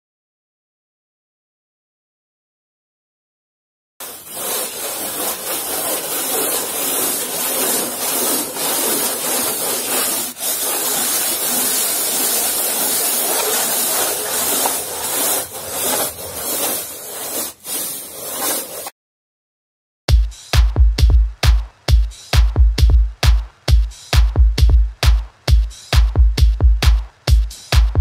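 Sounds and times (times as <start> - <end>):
sanding float rasping on foam board: 4.0 - 18.9.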